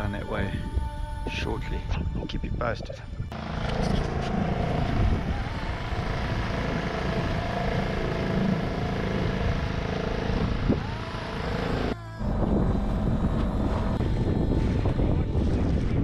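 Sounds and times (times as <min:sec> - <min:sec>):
wind on microphone: 0:00.0 - 0:06.3, 0:10.3 - 0:11.4, 0:12.2 - 0:16.0
outboard motor running: 0:03.3 - 0:16.0.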